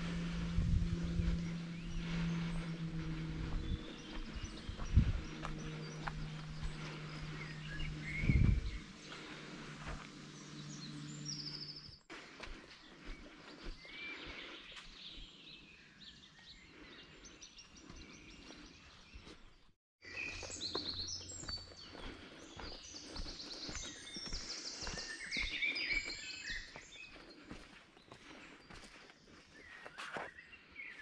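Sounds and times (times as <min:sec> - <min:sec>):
steady low hum: 0:00.0 - 0:14.6
songbirds chirping and trilling: 0:00.0 - 0:31.0.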